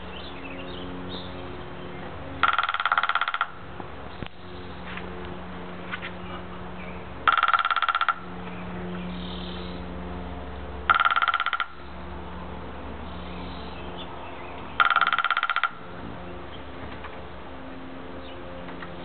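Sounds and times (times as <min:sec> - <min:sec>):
woodpecker drumming on bamboo: 0:02.4 - 0:04.4, 0:07.2 - 0:08.6, 0:10.8 - 0:12.0, 0:14.6 - 0:16.1.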